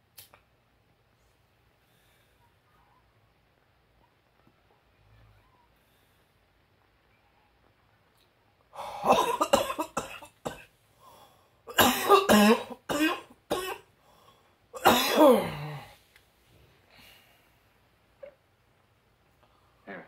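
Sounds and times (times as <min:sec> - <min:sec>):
person coughing and gasping: 0:08.8 - 0:10.7, 0:11.7 - 0:13.9, 0:14.8 - 0:15.9.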